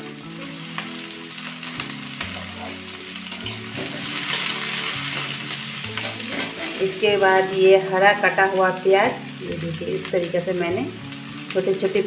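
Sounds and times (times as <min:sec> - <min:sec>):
onion sizzling in hot oil: 0:00.0 - 0:12.0
soft background music: 0:00.0 - 0:12.0
spatula stirring in a wok: 0:03.3 - 0:07.1.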